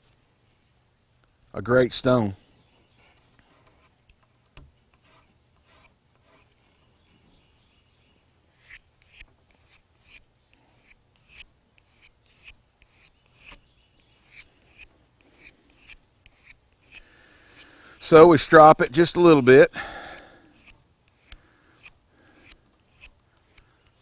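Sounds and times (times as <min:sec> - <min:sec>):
knife scraping on leather strop: 0:05.0 - 0:07.0, 0:08.6 - 0:17.7, 0:20.6 - 0:23.7.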